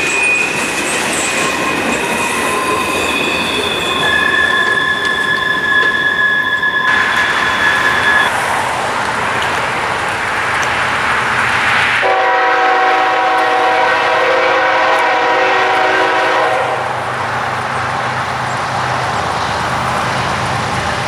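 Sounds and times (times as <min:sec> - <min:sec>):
steady rushing noise: 0:06.9 - 0:12.0
train air horn blast: 0:12.0 - 0:17.0.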